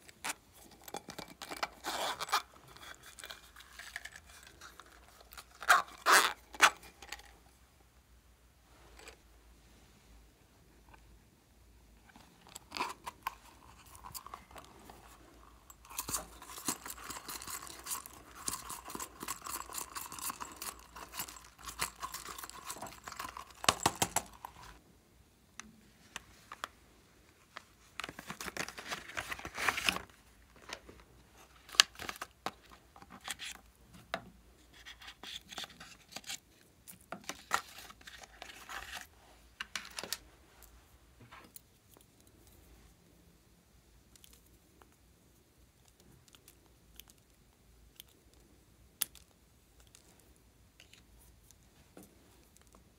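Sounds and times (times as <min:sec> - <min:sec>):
packaging crinkling and scratching: 0:00.0 - 0:07.3, 0:12.4 - 0:24.8, 0:28.0 - 0:30.9, 0:31.5 - 0:33.6.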